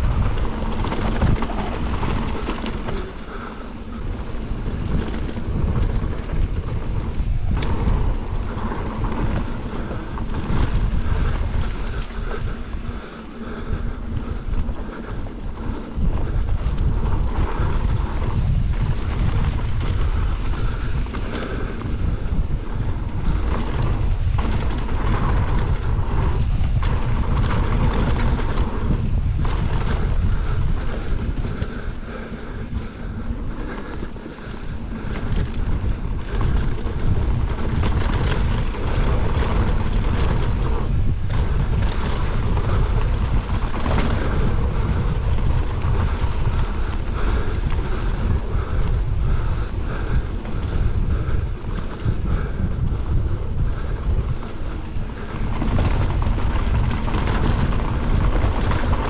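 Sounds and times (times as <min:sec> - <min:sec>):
bike knocking: 0:00.0 - 0:59.0
tyre noise on dirt trail: 0:00.0 - 0:59.0
wind buffeting microphone: 0:00.0 - 0:59.0.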